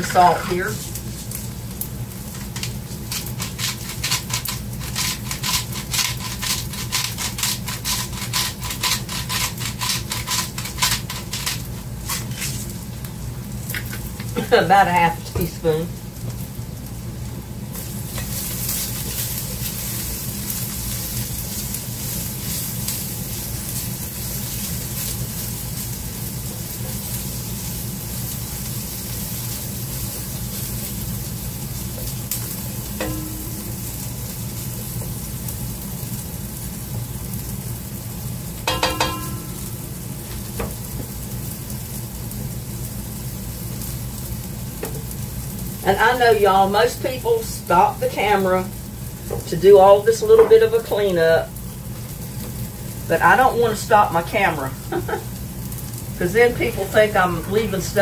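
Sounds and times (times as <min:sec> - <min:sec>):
food sizzling in a pan: 0:00.0 - 0:58.0
spatula scraping a pan: 0:02.4 - 0:12.7
low hum: 0:32.8 - 0:34.4, 0:38.7 - 0:40.4.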